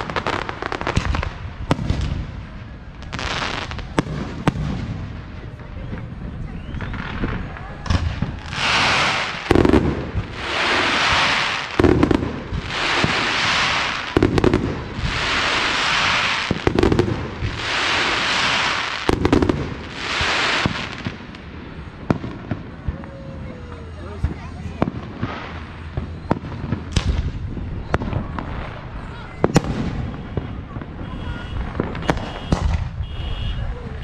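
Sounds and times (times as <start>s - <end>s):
small firework pops: 0.0s - 2.4s, 3.0s - 14.8s, 22.0s - 28.8s, 29.4s - 33.0s
firework bangs: 0.0s - 34.0s
firework hissing: 6.9s - 21.9s.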